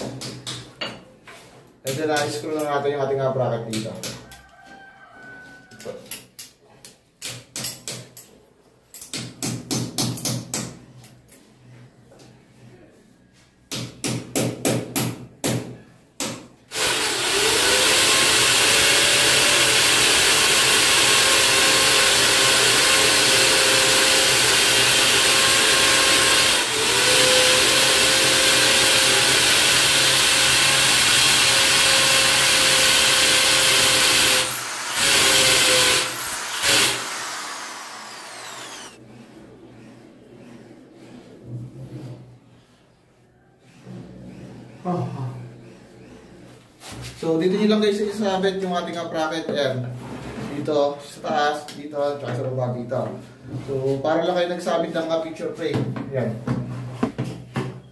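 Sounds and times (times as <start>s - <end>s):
electric drill boring into tile: 16.7s - 39.0s.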